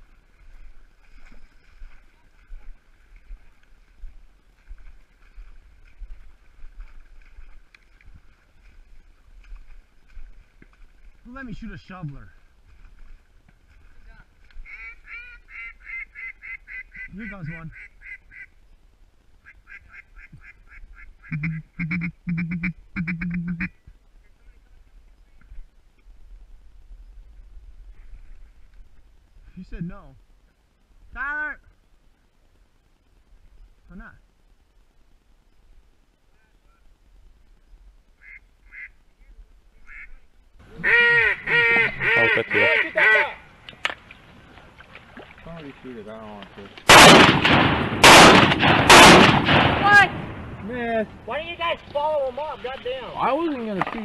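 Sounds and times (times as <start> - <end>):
duck quacking: 14.6 - 18.5, 19.4 - 23.8, 38.2 - 39.0, 39.8 - 43.4.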